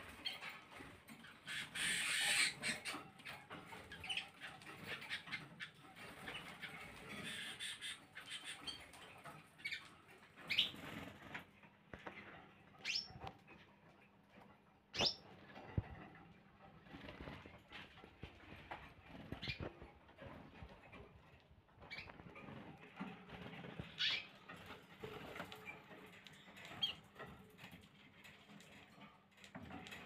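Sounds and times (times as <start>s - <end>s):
canaries chirping: 0.0s - 30.0s
wings flapping: 16.8s - 21.1s.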